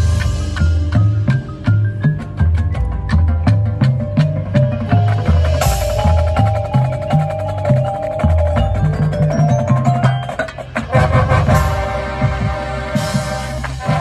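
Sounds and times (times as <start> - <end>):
low drum notes: 0.0 - 14.0
mallet percussion: 0.0 - 14.0
rhythmic clicking percussion: 0.0 - 14.0
wind instruments holding chords: 5.0 - 14.0.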